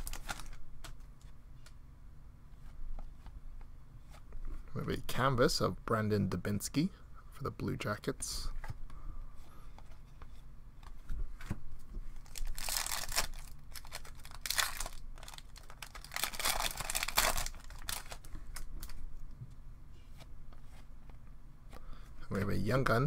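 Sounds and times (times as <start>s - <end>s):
card pack wrapper crinkling and tearing: 0.0s - 0.6s, 12.2s - 19.0s.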